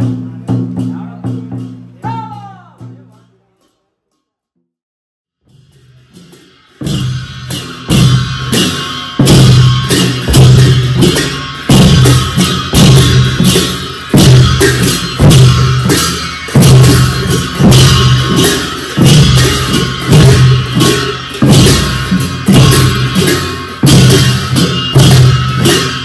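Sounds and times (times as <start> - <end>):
deep drum strokes: 5.5 - 26.0.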